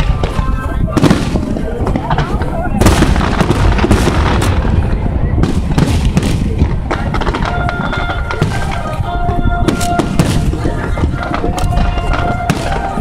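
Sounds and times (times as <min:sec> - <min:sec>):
fireworks bursting and crackling: 0:00.0 - 0:13.0
wind rumble on microphone: 0:00.0 - 0:13.0
music playing: 0:07.2 - 0:13.0.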